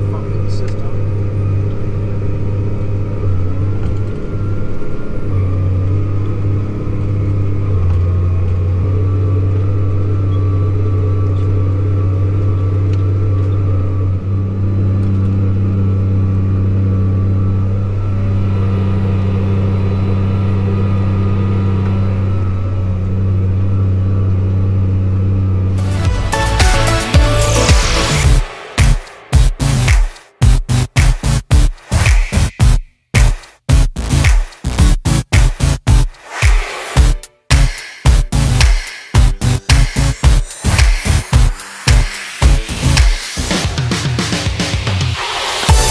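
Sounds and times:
tractor engine droning: 0.0 - 31.0.

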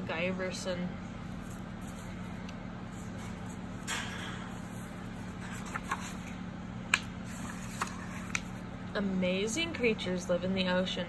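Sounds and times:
steady low hum: 0.0 - 11.0
book pages turning: 4.5 - 8.6.

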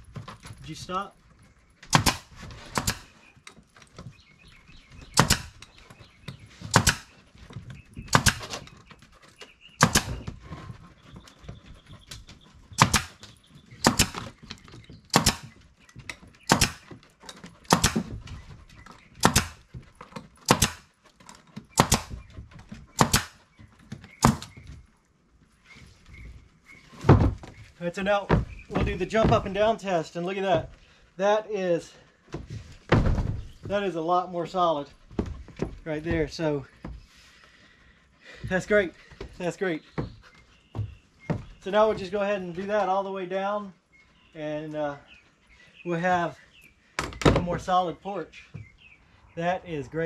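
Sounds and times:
nail gun firing into wood: 1.9 - 3.1, 5.2 - 5.6, 6.7 - 7.1, 8.1 - 8.7, 9.8 - 10.2, 12.8 - 13.2, 13.8 - 14.3, 15.1 - 15.5, 16.5 - 16.9, 17.7 - 18.1, 19.2 - 19.6, 20.4 - 20.9, 21.8 - 22.2, 23.0 - 23.4, 24.2 - 24.5.

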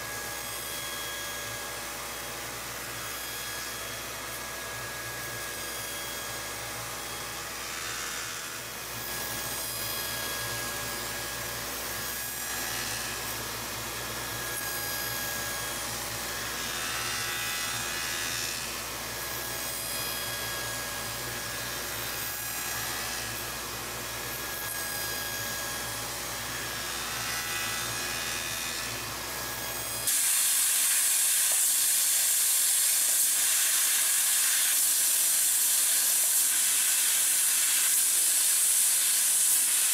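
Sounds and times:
circular saw cutting wood: 0.0 - 39.9
laser cutter hissing: 30.0 - 39.9.

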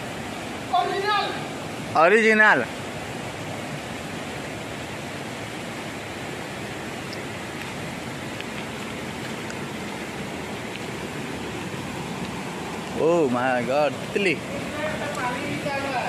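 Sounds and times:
waterfall splashing into pool: 4.1 - 16.0.

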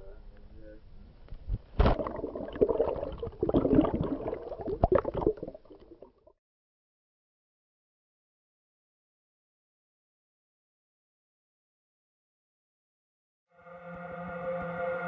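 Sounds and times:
water splashing and gurgling: 1.8 - 6.2
underwater bubbling: 1.8 - 6.3.

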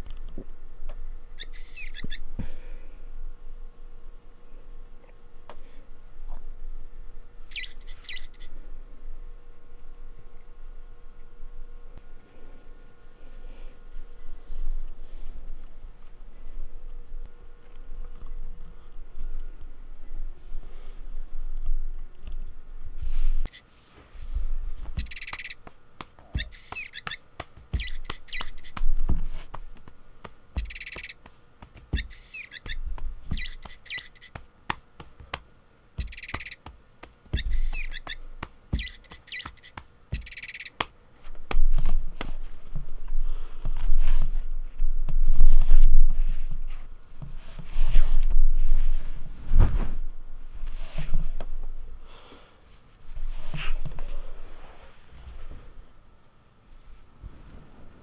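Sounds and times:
toy bird chirps: 1.4 - 2.2, 7.5 - 8.5, 25.0 - 25.6, 26.4 - 27.2, 27.8 - 28.8, 30.6 - 31.2, 32.0 - 34.4, 36.0 - 36.7, 37.4 - 38.2, 38.8 - 40.8
hand patting cat: 24.2 - 43.0.

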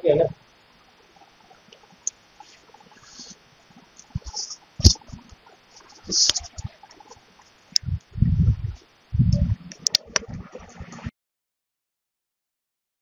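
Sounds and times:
brief rustling hiss: 2.5 - 3.4, 4.0 - 5.2, 5.8 - 6.7.

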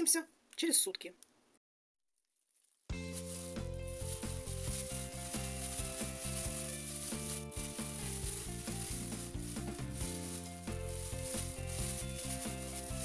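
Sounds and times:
plastic bag crinkling: 2.4 - 13.0
background music with held notes: 2.9 - 13.0.

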